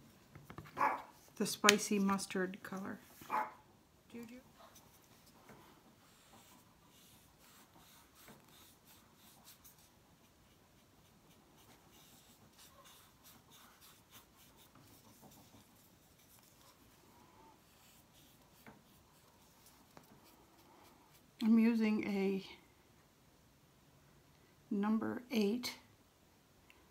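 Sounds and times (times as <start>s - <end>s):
paintbrush strokes on gourd: 4.6s - 21.4s.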